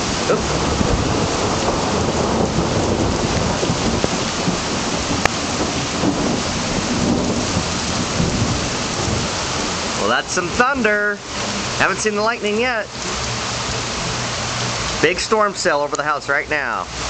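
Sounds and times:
low rumble of thunder: 0:00.0 - 0:10.0
heavy rain pouring: 0:00.0 - 0:17.0.

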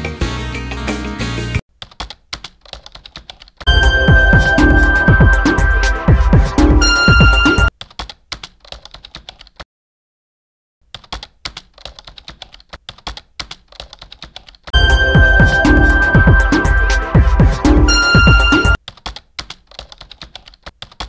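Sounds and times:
bass-heavy background music: 0:00.0 - 0:01.6, 0:03.7 - 0:07.7, 0:14.8 - 0:18.8
keyboard typing sound effect: 0:01.8 - 0:09.5, 0:10.9 - 0:21.0.

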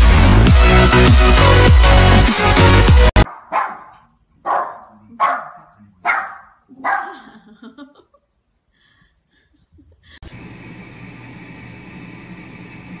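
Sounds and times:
small dog barking: 0:03.2 - 0:07.2.

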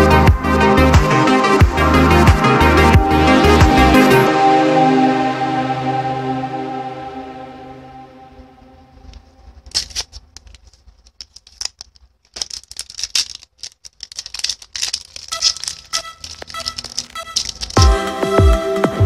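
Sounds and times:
foil wrapper crinkling: 0:09.1 - 0:17.8.

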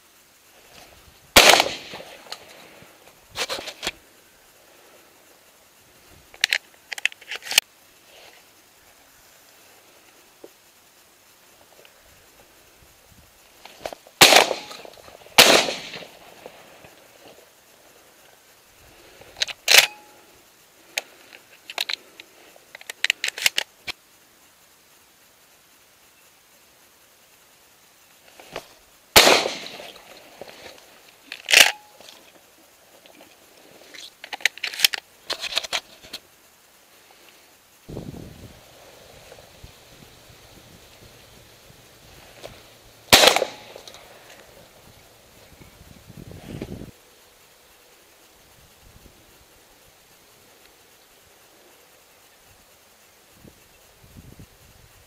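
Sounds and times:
shotgun shot with echo: 0:01.4 - 0:02.1, 0:14.2 - 0:14.8, 0:15.4 - 0:16.1, 0:29.2 - 0:29.9, 0:43.1 - 0:43.8
metallic clicks of shotgun reloading: 0:19.4 - 0:20.0, 0:22.8 - 0:23.7, 0:31.3 - 0:31.8.

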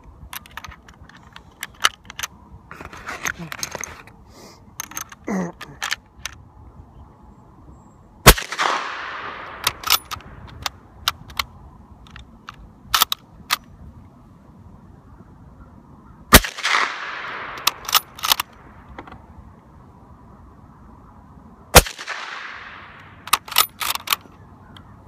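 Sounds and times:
suppressed rifle shots: 0:08.2 - 0:10.6, 0:16.3 - 0:18.4, 0:21.7 - 0:24.0
rifle bolt clicking: 0:08.6 - 0:11.5, 0:16.6 - 0:19.2, 0:22.0 - 0:24.3.

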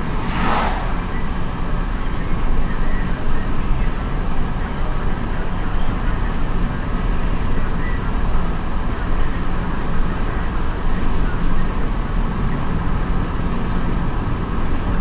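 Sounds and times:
wind past car windows: 0:00.0 - 0:02.6.

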